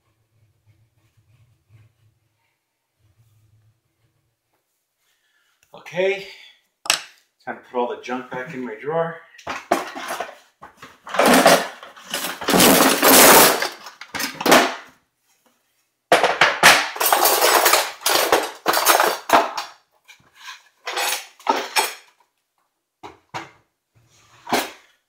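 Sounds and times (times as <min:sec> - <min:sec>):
cutlery clattering in wooden drawer: 0:09.5 - 0:10.4, 0:11.1 - 0:14.8, 0:16.2 - 0:19.7, 0:20.4 - 0:22.1.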